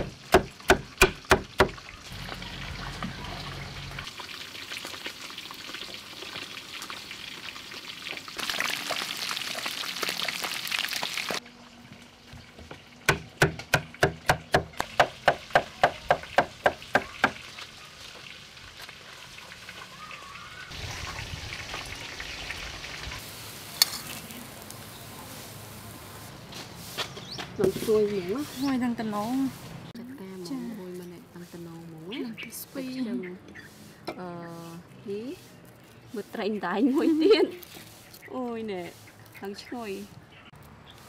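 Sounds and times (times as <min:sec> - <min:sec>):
knife chopping on wooden board: 0:00.0 - 0:01.8, 0:13.1 - 0:17.4
hot oil sizzling: 0:00.0 - 0:11.4, 0:14.7 - 0:27.0.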